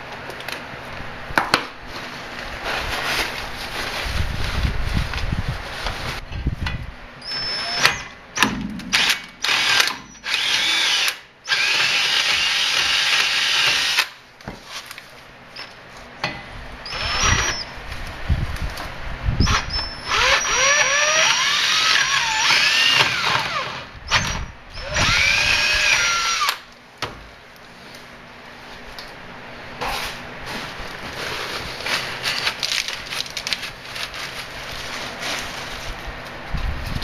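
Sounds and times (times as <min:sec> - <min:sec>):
electric drill bit squealing through steel: 0:07.2 - 0:08.2, 0:09.5 - 0:14.0, 0:16.8 - 0:17.8, 0:19.4 - 0:26.6.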